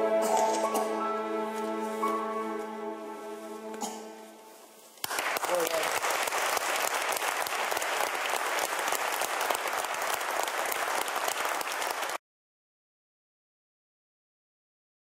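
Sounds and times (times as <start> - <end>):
audience applauding: 5.0 - 12.2.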